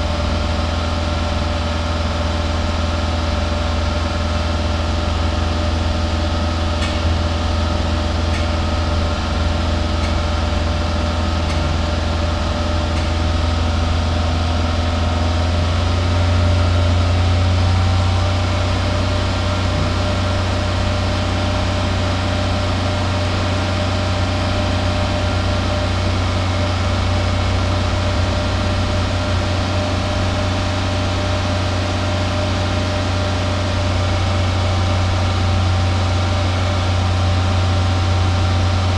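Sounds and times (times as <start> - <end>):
car engine idling: 0.0 - 38.9.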